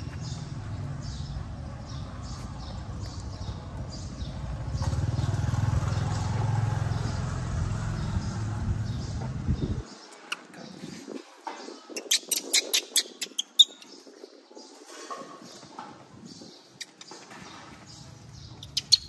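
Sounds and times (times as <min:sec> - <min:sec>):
low pulsing engine rumble: 0:00.0 - 0:09.9.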